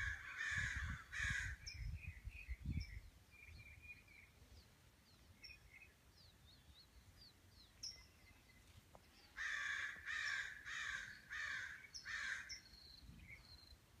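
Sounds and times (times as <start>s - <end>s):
small birds chirping: 0.0s - 14.0s
bird giving harsh calls: 9.4s - 12.6s.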